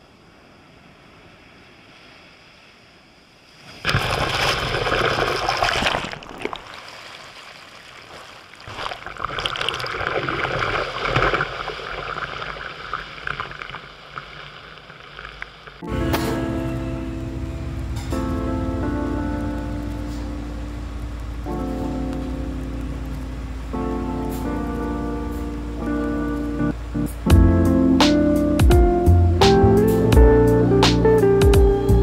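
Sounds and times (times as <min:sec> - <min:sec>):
sea waves surging over rocks: 0:00.0 - 0:28.7
fizzing foam: 0:03.8 - 0:15.3.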